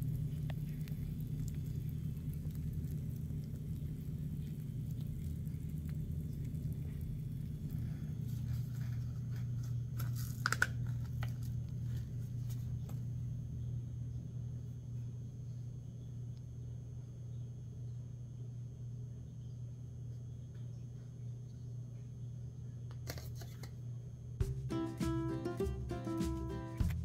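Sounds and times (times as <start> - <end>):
peat pellets crackling and popping: 0.0 - 13.0
steady low hum: 0.0 - 27.0.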